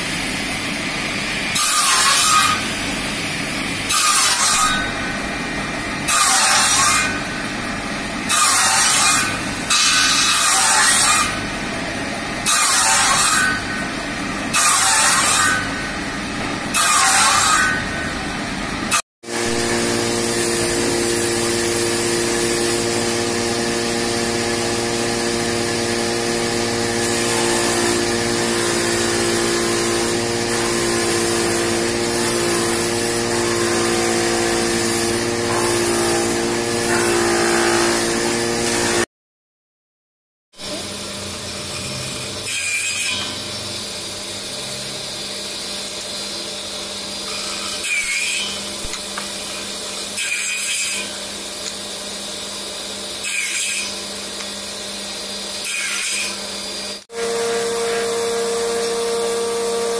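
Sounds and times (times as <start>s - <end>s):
power saw cutting wood: 1.4s - 2.8s, 3.8s - 39.1s, 40.6s - 59.9s
rotating cutter head humming: 19.3s - 39.0s, 55.8s - 59.9s.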